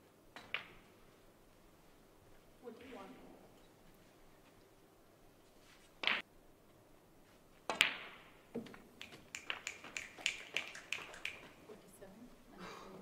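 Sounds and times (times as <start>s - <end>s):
cue striking ball: 0.4s - 0.9s, 6.0s - 6.2s, 7.7s - 8.8s
light claps: 9.0s - 11.6s.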